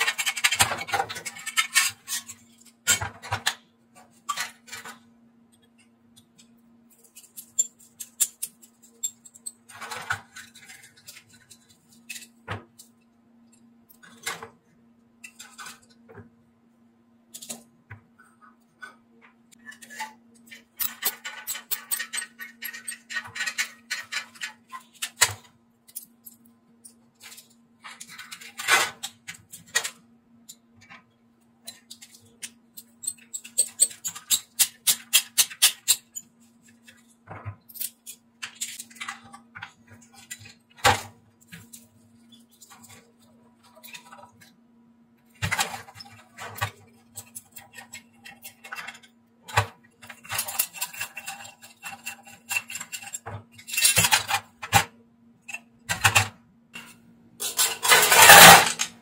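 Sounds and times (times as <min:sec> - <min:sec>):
metal parts clinking and rattling: 0:00.0 - 0:05.1, 0:06.4 - 0:14.5, 0:19.6 - 0:31.0, 0:31.6 - 0:44.5, 0:45.4 - 0:54.8, 0:55.4 - 0:59.0
screwdriver clicking on metal parts: 0:06.2 - 0:12.9, 0:19.7 - 0:27.4, 0:31.6 - 0:37.0.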